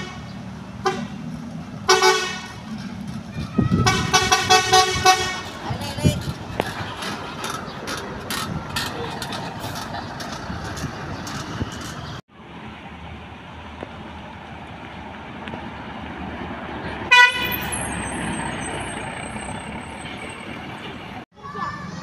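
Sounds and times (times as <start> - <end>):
bus horn toot: 0.0 - 1.2, 1.8 - 2.6, 3.6 - 5.7, 17.1 - 18.3
bus engines passing: 0.0 - 22.0.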